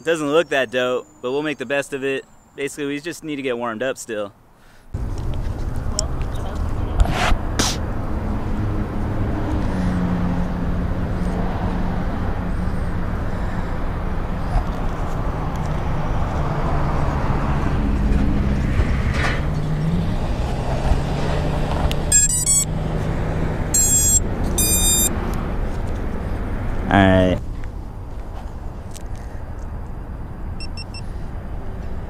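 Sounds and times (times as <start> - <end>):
low vehicle hum: 4.9 - 32.0
electronic start-up beeps: 22.1 - 22.7, 23.8 - 25.1, 30.6 - 31.0.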